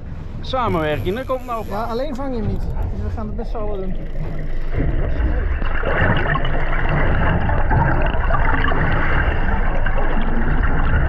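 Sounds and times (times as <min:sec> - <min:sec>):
water sloshing and gurgling: 0:00.0 - 0:11.0.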